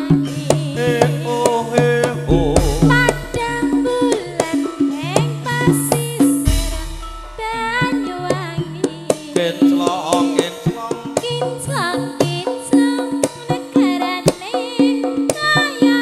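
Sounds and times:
person singing: 0.0 - 14.6
kendang drum strokes: 2.3 - 9.2
gong and metallophone tones: 6.4 - 8.8.

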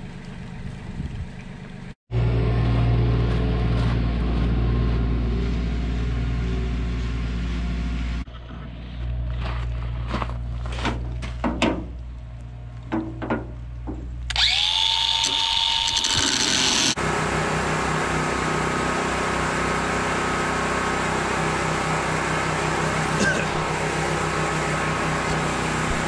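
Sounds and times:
low steady hum: 2.1 - 16.0
sharp knocks and clicks: 12.8 - 14.1
angle grinder whining: 13.8 - 26.0.

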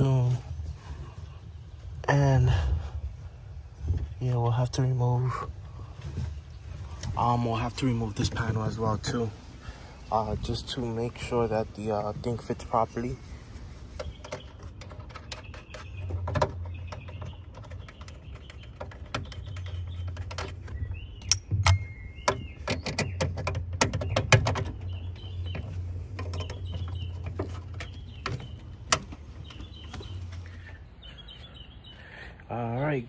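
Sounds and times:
birds chirping: 0.0 - 33.0
tools and metal parts clinking: 14.2 - 29.6.

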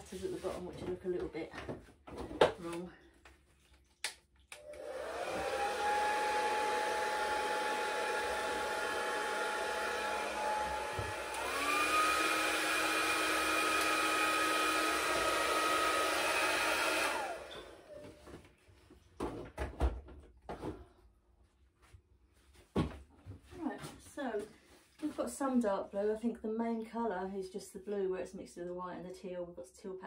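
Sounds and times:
hair dryer whining: 4.5 - 18.2.

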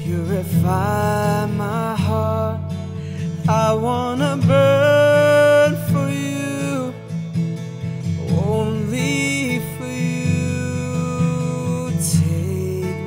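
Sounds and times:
strummed acoustic guitar: 0.0 - 13.0.

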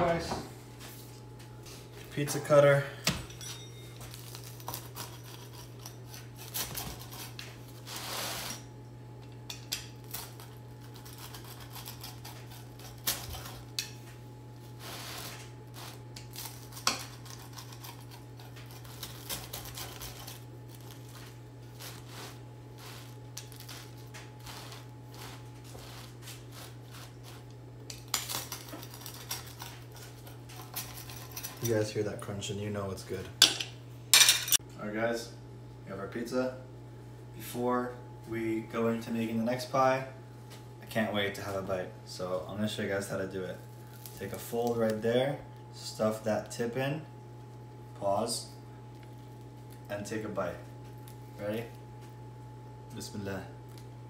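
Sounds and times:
pizza crust crunching: 4.0 - 8.6, 9.4 - 31.9, 43.4 - 45.7, 48.7 - 52.3
low hum: 33.2 - 54.0.

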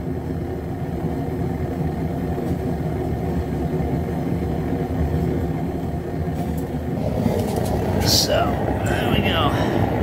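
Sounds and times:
forge burner flame rushing: 6.2 - 10.0.

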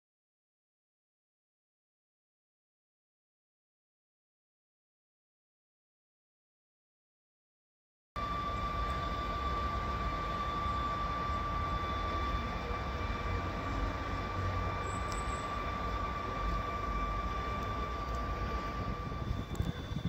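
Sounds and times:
train equipment high-pitched whine: 8.2 - 20.0
low rumble: 8.3 - 20.0.

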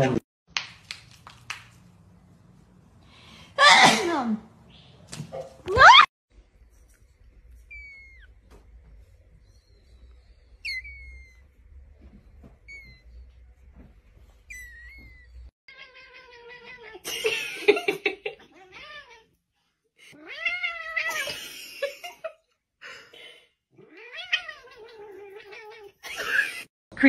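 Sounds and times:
cat yowling: 23.8 - 26.1.

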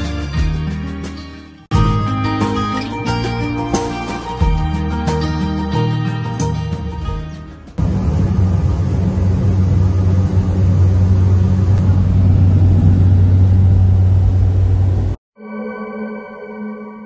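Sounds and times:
light aircraft engine droning: 7.8 - 15.2.

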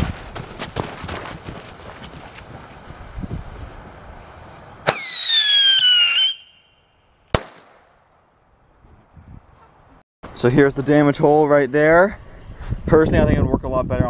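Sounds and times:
falling firework whistle: 4.8 - 6.8
firework bang: 7.3 - 7.8.

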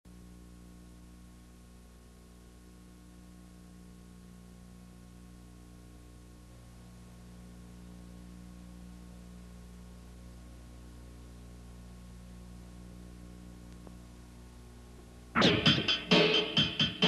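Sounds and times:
low electrical hum: 0.1 - 17.0
tape hiss: 0.1 - 17.0.

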